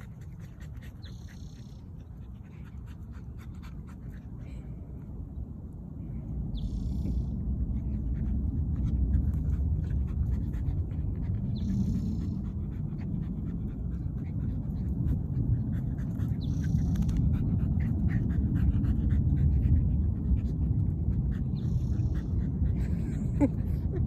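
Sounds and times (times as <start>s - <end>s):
dogs panting: 0.0s - 5.0s, 7.3s - 24.0s.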